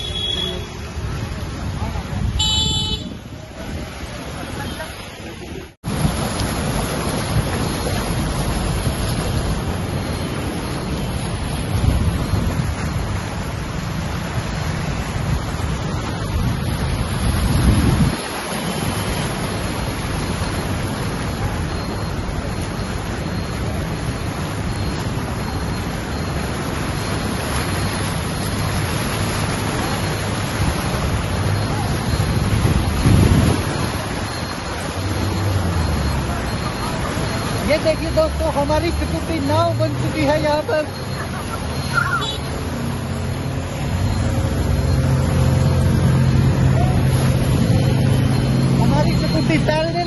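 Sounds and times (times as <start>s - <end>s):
floodwater rushing and splashing: 0.0s - 50.0s
wind buffeting microphone: 1.3s - 19.8s, 29.8s - 34.8s.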